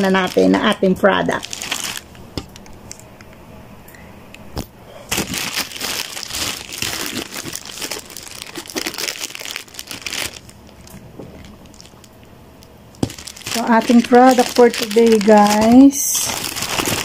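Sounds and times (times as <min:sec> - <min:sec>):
paper wrapping crinkling: 0:00.0 - 0:02.1, 0:05.1 - 0:12.1, 0:13.0 - 0:17.0.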